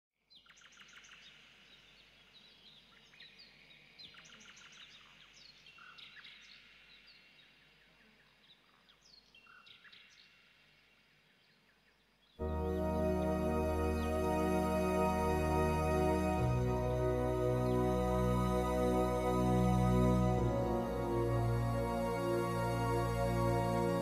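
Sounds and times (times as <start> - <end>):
soft new-age music: 12.4 - 24.0.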